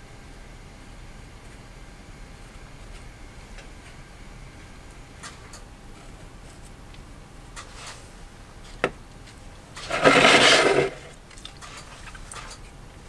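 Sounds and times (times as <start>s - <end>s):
rustling noise: 7.6s - 12.5s
brush scratching: 9.8s - 12.2s.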